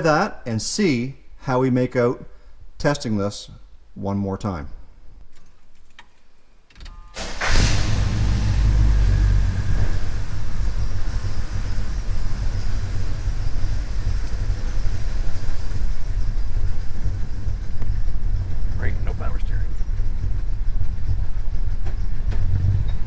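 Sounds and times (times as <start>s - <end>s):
pickup truck engine running: 7.3s - 23.0s.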